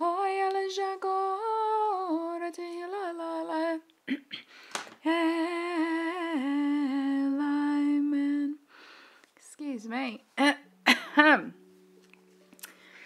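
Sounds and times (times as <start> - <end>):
quick breath: 4.4 - 4.9, 8.7 - 9.4.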